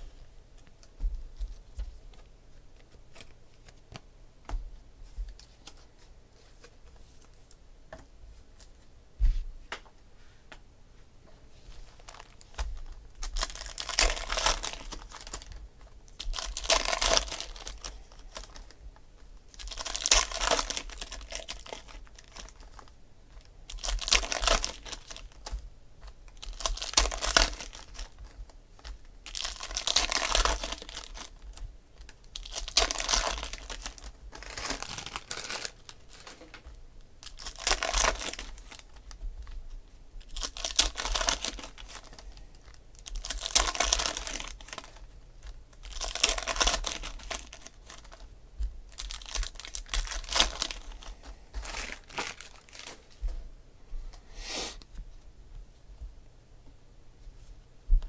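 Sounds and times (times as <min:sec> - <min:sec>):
foil wrapper and cards rustling: 0:11.8 - 0:18.8, 0:19.5 - 0:39.6, 0:40.2 - 0:48.3, 0:48.9 - 0:53.3.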